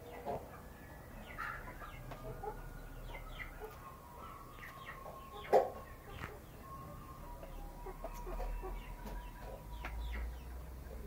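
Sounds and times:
hens clucking: 0:00.0 - 0:11.0.

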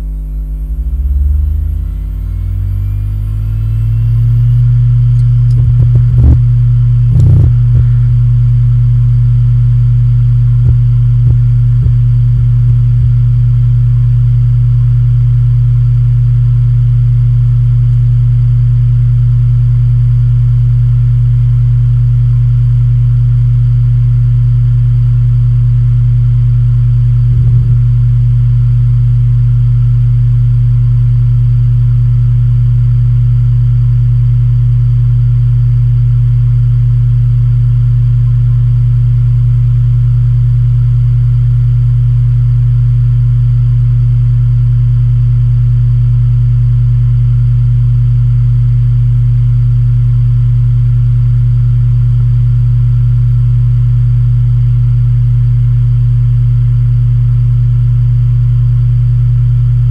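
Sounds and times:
hard drive spinning hum: 0:00.0 - 0:15.2, 0:25.7 - 0:30.7
hard drive seek clicks: 0:05.2 - 0:06.5, 0:07.1 - 0:08.1, 0:10.6 - 0:13.2.

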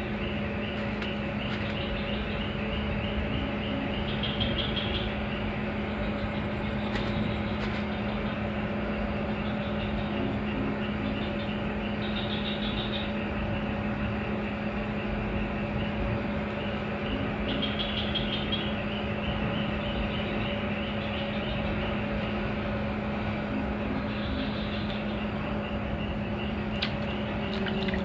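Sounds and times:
low mechanical hum: 0:00.0 - 0:28.0.

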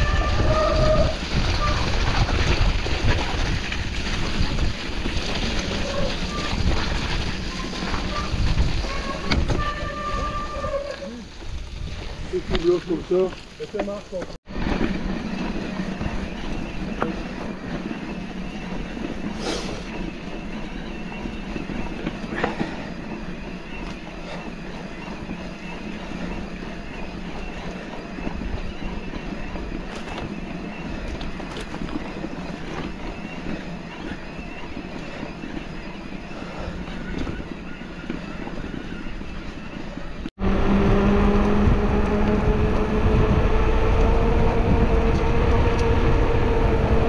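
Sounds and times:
bike rattling: 0:00.0 - 0:47.0
tyres rumbling on rough ground: 0:00.0 - 0:47.0.

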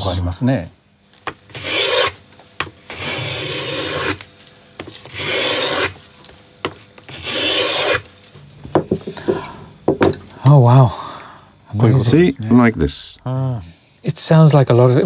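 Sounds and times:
hand plane shaving wood: 0:01.5 - 0:02.2, 0:02.9 - 0:04.2, 0:04.8 - 0:06.0, 0:06.7 - 0:08.0.

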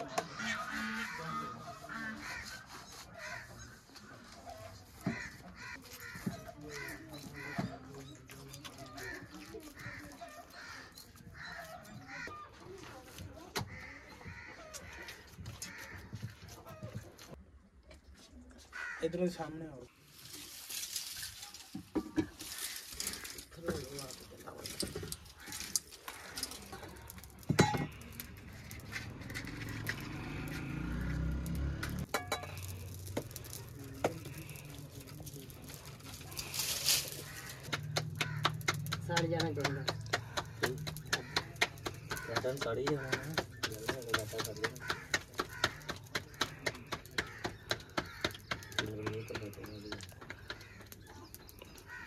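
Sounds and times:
dishes clinking: 0:32.1 - 0:32.6
rapid rhythmic knocking: 0:37.3 - 0:50.8.

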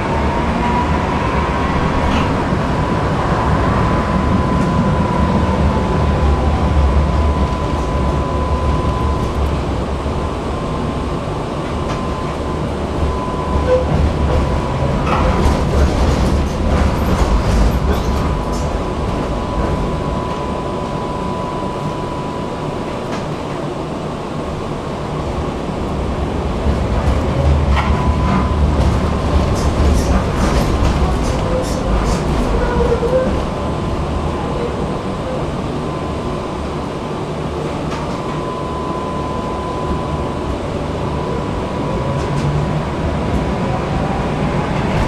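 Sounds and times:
tram rumbling along track: 0:00.0 - 0:45.0
thin steady whine: 0:04.0 - 0:13.9, 0:18.8 - 0:24.7, 0:35.4 - 0:42.2.

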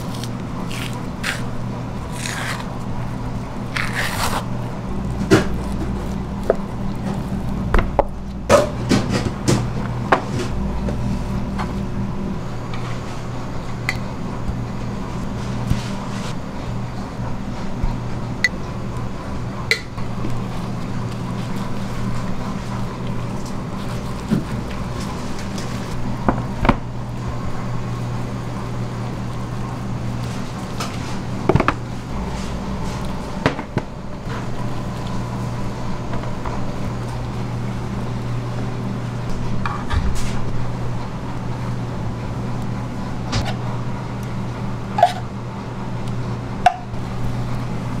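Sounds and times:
kitchen machinery hum: 0:00.0 - 0:48.0.

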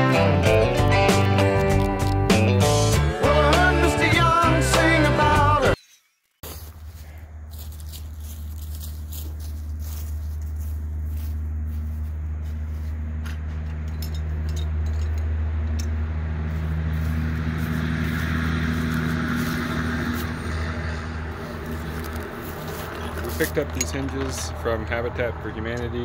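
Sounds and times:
low engine hum: 0:06.6 - 0:26.0.

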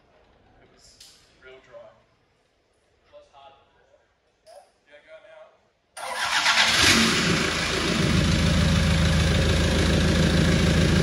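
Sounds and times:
diesel engine starting and idling: 0:06.0 - 0:11.0.

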